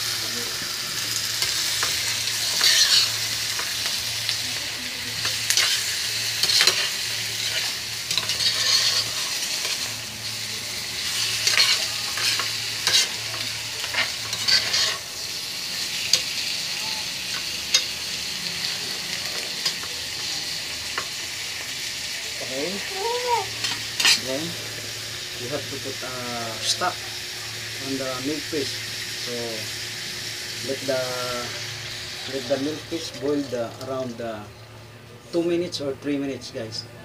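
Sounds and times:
fish sizzling in hot oil: 0.0s - 34.8s
metal ladle scraping a pan: 6.4s - 9.9s, 13.9s - 15.0s.

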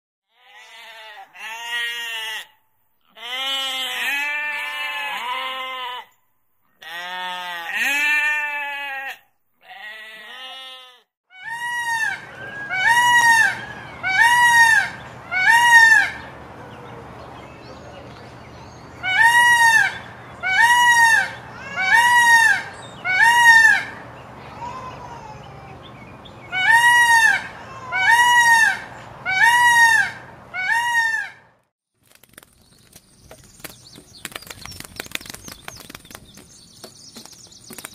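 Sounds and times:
sheep bleating: 0.3s - 6.2s, 6.8s - 11.9s
peacock calling: 11.3s - 31.5s.

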